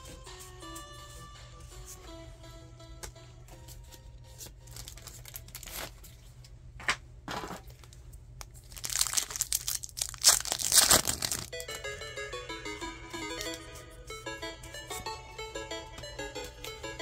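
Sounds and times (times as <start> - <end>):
packaging crinkling and tearing: 4.7 - 6.2, 8.4 - 11.6.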